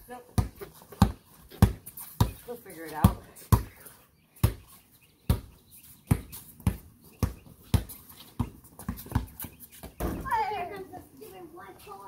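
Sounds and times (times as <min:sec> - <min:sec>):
basketball bouncing on concrete: 0:00.1 - 0:03.8, 0:04.4 - 0:05.5, 0:06.1 - 0:10.4.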